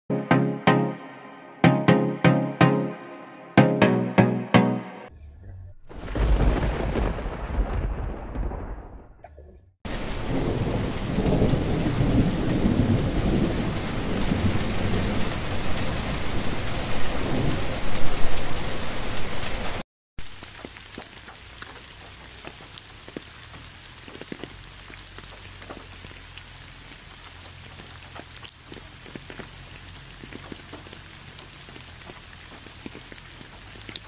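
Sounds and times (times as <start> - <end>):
heavy rain pouring: 5.9 - 8.9, 9.9 - 34.0
raindrops striking: 5.9 - 9.1, 9.9 - 34.0
low thunder rumbling: 5.9 - 9.2, 9.9 - 18.6.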